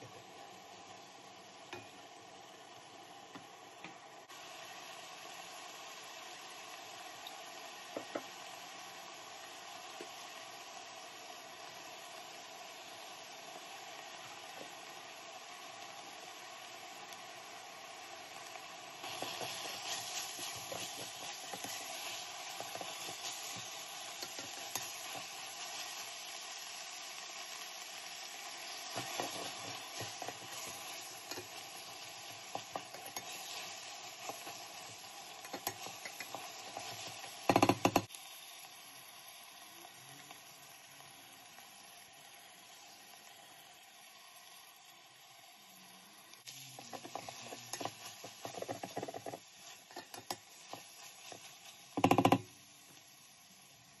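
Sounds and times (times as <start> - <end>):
meat and onion sizzling in a pot: 0.0 - 54.0
wooden spoon scraping a pot: 19.0 - 25.9, 28.9 - 38.0, 46.8 - 52.4.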